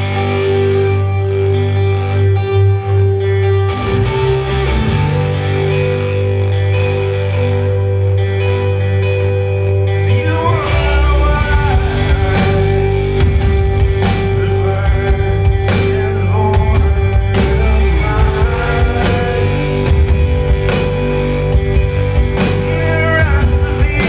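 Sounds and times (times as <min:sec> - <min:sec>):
bass guitar: 0:00.0 - 0:24.0
drums: 0:00.0 - 0:24.0
electric guitars: 0:00.0 - 0:24.0
man singing lead vocal: 0:09.9 - 0:20.1, 0:22.4 - 0:24.0.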